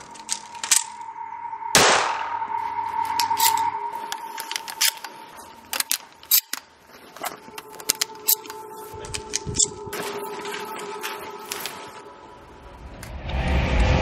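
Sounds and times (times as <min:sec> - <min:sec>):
shotgun shells clicking into magazine: 0:00.0 - 0:01.0, 0:03.2 - 0:05.1, 0:05.7 - 0:06.7, 0:07.5 - 0:09.8.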